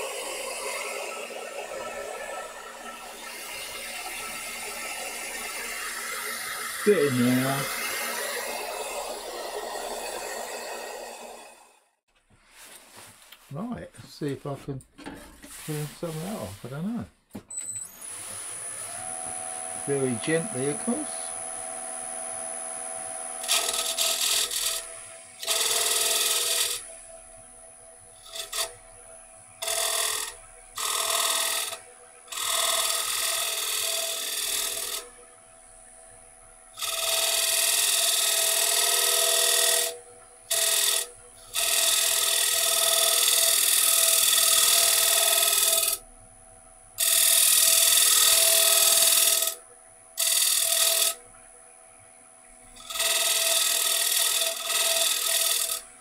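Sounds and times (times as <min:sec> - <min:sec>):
wood lathe whine: 0:00.0 - 0:11.8, 0:17.8 - 0:46.1, 0:46.9 - 0:51.6, 0:52.2 - 0:56.0
tool rasping on spinning wood: 0:03.2 - 0:11.5, 0:23.4 - 0:26.8, 0:29.6 - 0:35.1, 0:36.8 - 0:46.0, 0:47.0 - 0:49.6, 0:50.2 - 0:51.2, 0:52.8 - 0:55.9.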